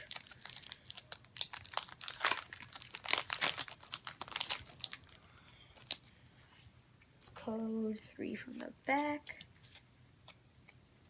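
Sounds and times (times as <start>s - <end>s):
foil wrapper tearing and crinkling: 0.0s - 5.2s.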